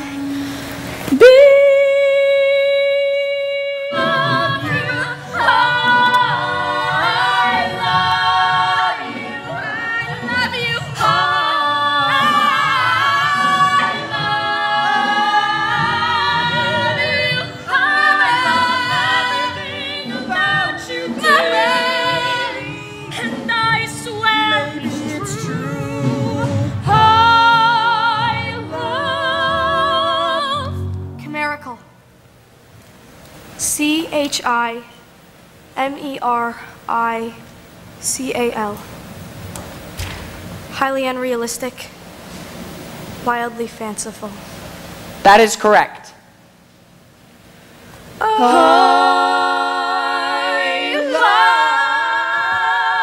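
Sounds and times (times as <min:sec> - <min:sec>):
musical theatre singing: 0:00.0 - 0:31.2, 0:48.1 - 0:53.0
musical accompaniment: 0:03.9 - 0:31.7.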